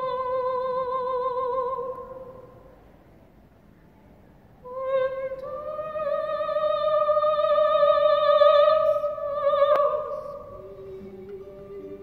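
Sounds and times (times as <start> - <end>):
woman singing opera high note: 4.7 - 12.0.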